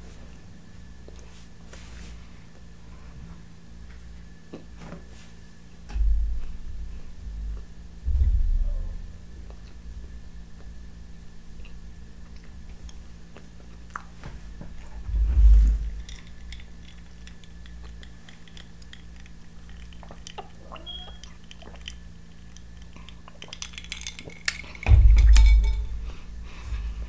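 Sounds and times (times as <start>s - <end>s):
heavy low thumps: 5.8s - 12.7s, 14.4s - 16.6s, 24.8s - 27.0s
chewing with small clicks: 11.6s - 14.2s, 15.9s - 24.8s.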